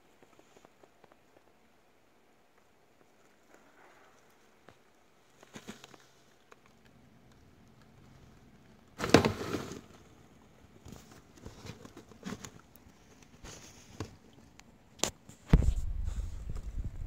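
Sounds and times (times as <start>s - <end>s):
bedding rustling and crackling: 2.6s - 6.8s, 7.9s - 14.6s.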